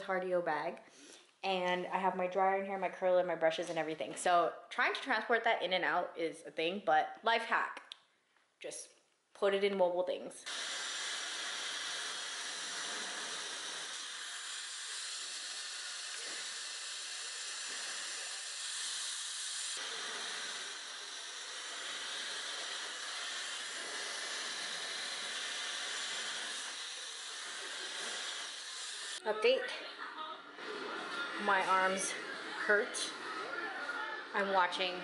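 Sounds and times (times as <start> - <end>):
hair dryer blowing: 10.5 - 29.2.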